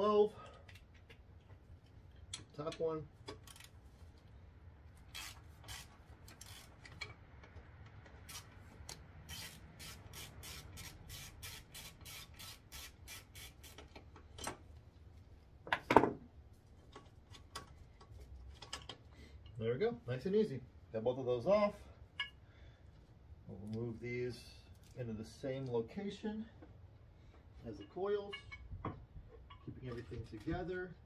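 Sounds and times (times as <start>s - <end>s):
ratchet pawl clicking: 5.1s - 6.7s, 8.3s - 13.9s.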